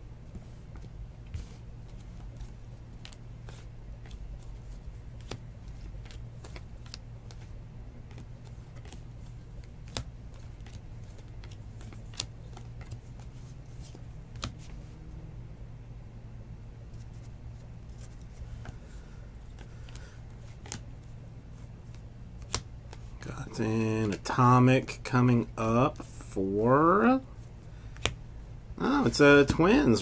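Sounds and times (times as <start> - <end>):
low hum: 0.0 - 29.0
trading cards flipped by hand: 0.7 - 14.9, 19.4 - 21.1, 21.8 - 23.2, 27.9 - 28.2.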